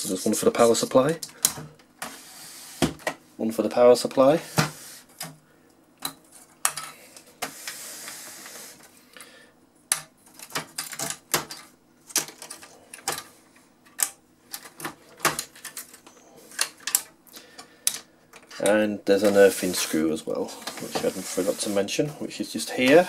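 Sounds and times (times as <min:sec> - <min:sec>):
rustling scrape: 0:19.2 - 0:22.1.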